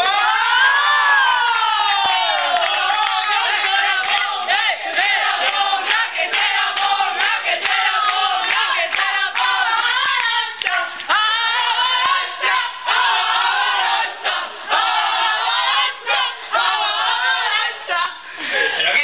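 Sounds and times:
group singing in chorus: 0.0s - 19.0s
hand clapping: 5.4s - 11.1s.

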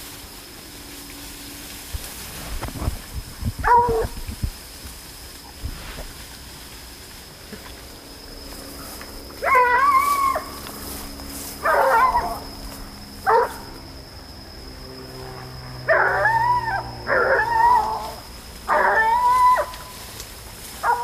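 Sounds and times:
hunting dogs baying: 3.5s - 4.3s, 7.6s - 10.9s, 11.5s - 13.8s, 15.2s - 20.0s, 20.8s - 21.0s.

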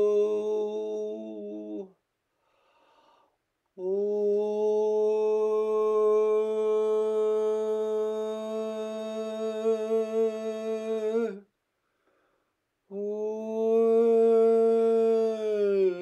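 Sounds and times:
man holding a vocal tone: 0.0s - 2.0s, 3.8s - 11.4s, 12.9s - 16.0s.

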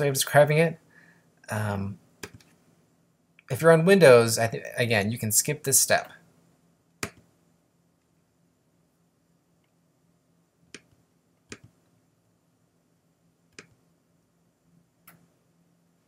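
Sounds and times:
computer mouse clicks: 2.2s - 2.6s, 7.0s - 7.3s, 10.7s - 11.9s, 13.5s - 13.8s, 15.0s - 15.3s.

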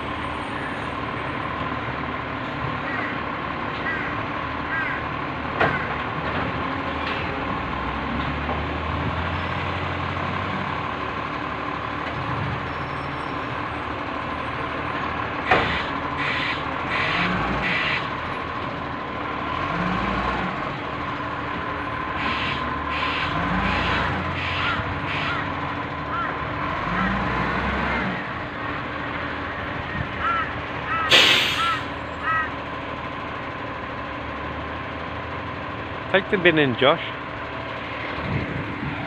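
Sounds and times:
garbage truck running: 0.0s - 39.0s
hiss bursts: 31.1s - 31.8s.

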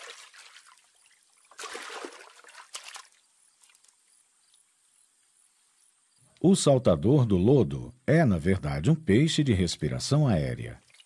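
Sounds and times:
small water splashes and trickling: 0.0s - 4.2s, 10.8s - 11.0s.

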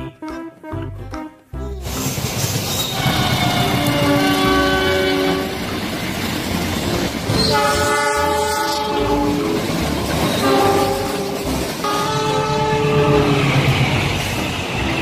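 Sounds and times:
rumble of passing train: 1.9s - 15.0s
locomotive air horn blasts: 2.9s - 5.7s, 7.4s - 9.7s, 10.3s - 13.5s.

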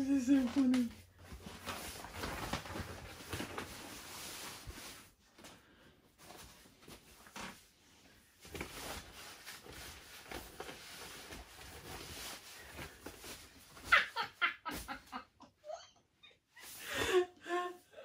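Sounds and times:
plastic bed sheet rustling and crinkling: 0.0s - 15.3s.

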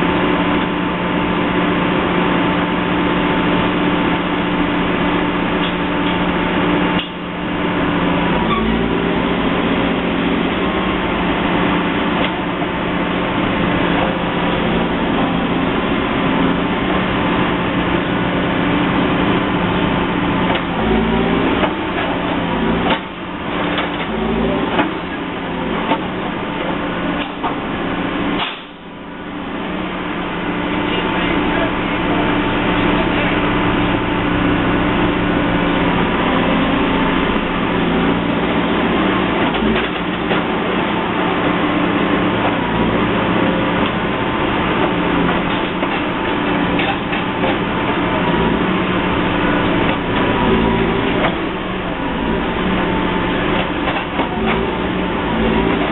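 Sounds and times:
heavy construction machinery running: 0.0s - 55.9s
sharp knocks and clanks: 22.8s - 24.1s.

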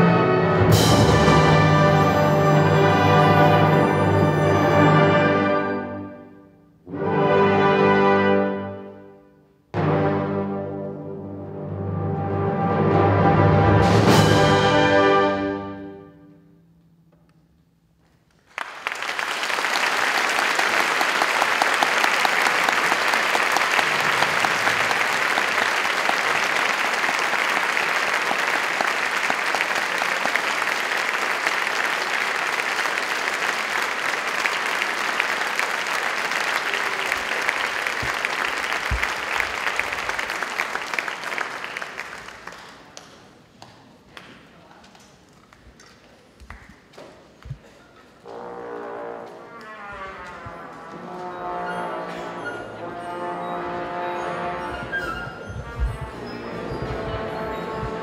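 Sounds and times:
audience applause: 18.4s - 44.3s.

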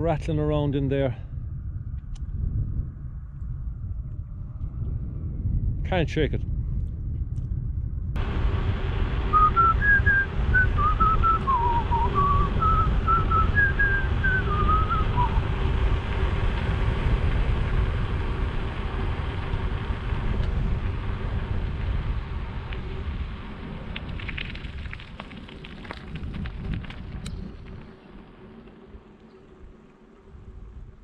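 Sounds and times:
wind and road rumble: 0.0s - 31.0s
man whistling a tune: 9.3s - 15.4s.

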